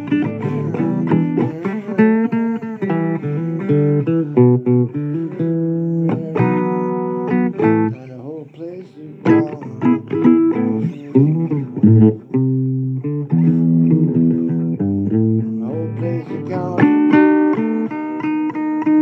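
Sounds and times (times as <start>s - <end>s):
blues guitar single-note lines: 0.0s - 19.0s
bass guitar: 9.3s - 19.0s.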